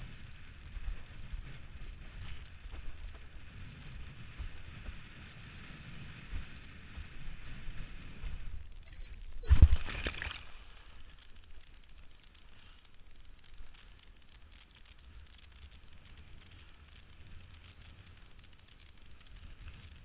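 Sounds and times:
wind against camera: 0.0 - 20.0
loud water splash: 9.4 - 10.7.

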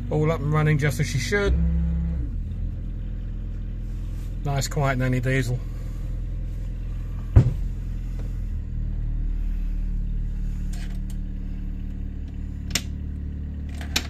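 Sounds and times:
marine diesel engine idling: 0.0 - 14.0.

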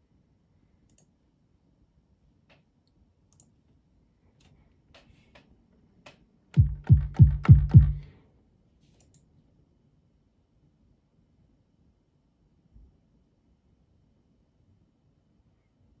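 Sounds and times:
kick drum thumps: 6.6 - 8.0.

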